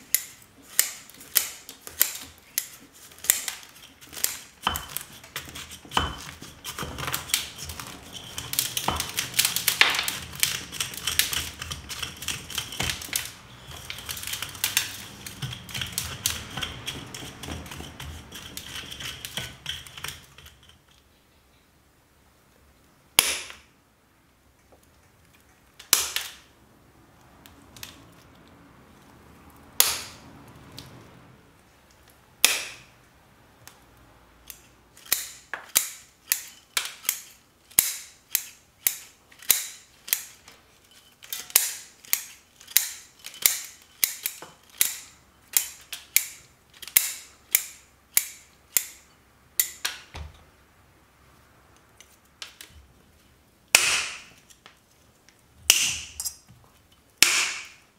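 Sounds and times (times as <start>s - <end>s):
shears snipping through roots: 0.0s - 20.2s.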